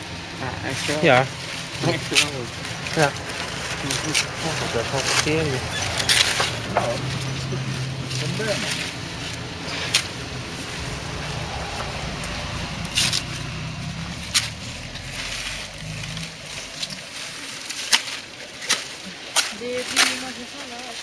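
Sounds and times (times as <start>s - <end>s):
engine idling: 0.0s - 20.9s
leaves crackling and scraping: 0.0s - 21.0s
leaves snapping: 10.8s - 21.0s.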